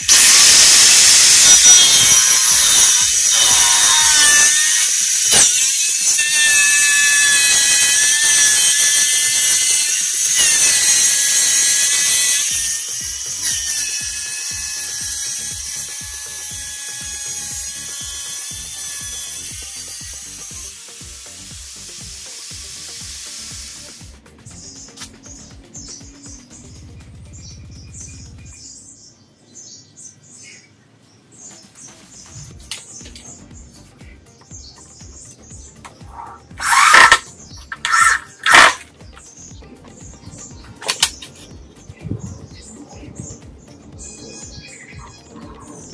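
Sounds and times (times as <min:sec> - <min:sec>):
angle grinder cutting board: 0:00.0 - 0:24.2, 0:35.9 - 0:38.9.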